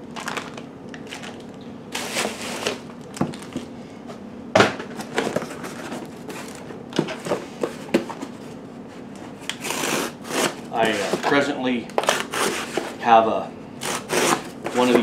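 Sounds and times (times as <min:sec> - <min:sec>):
plastic packaging crinkling: 0:00.0 - 0:03.8.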